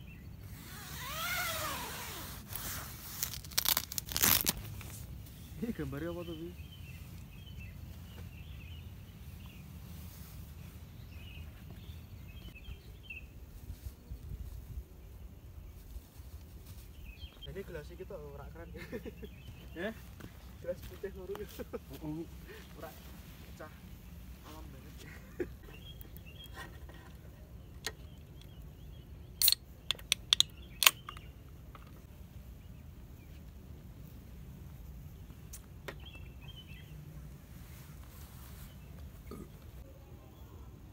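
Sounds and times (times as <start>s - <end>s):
small birds chirping: 0.0s - 40.9s
drink can opening: 29.4s - 31.3s.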